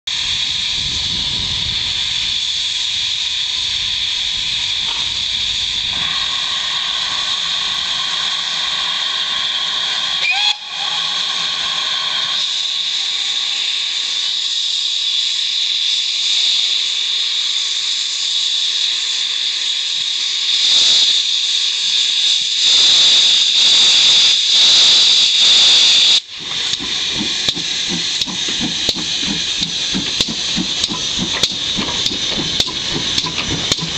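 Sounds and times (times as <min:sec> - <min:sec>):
steam engine exhaust beats: 0:00.1 - 0:33.9
steam locomotive hissing: 0:00.1 - 0:33.9
cylinder drain cocks blowing: 0:04.8 - 0:12.7, 0:26.2 - 0:33.9.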